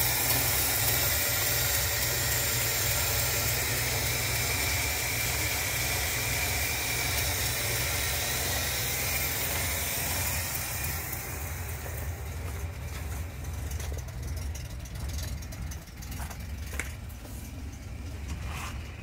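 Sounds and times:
engine idling: 0.0 - 19.0
footsteps crunching on snow: 11.7 - 14.0.

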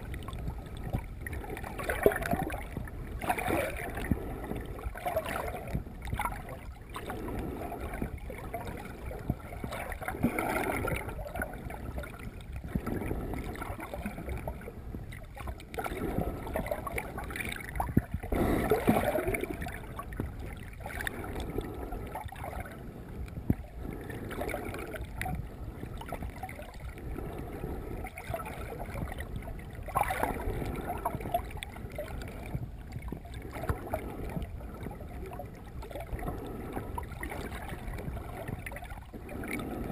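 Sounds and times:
muffled underwater water noise: 0.0 - 39.9.

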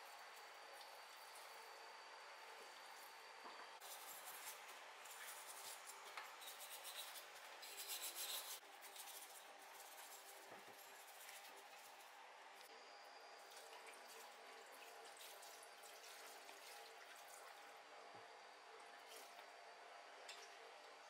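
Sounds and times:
brush scrubbing metal: 3.8 - 12.0.

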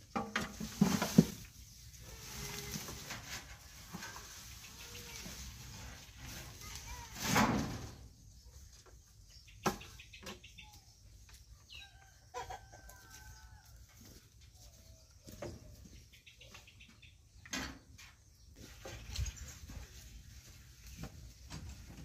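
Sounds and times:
fowl and birds calling: 9.2 - 17.4.

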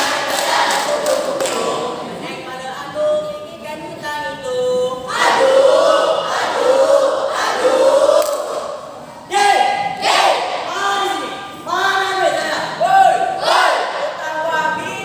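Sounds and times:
voices singing held notes: 4.7 - 11.2.

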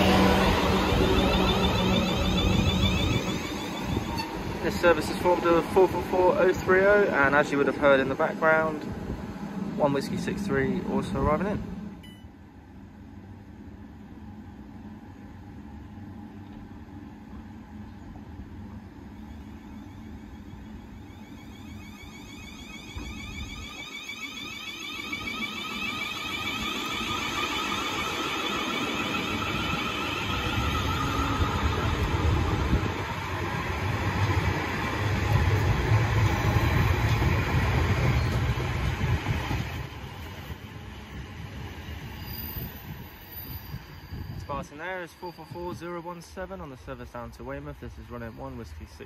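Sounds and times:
electric train motors whining: 0.0 - 7.6, 18.9 - 46.4
wheel-on-rail rumble: 15.1 - 44.5.

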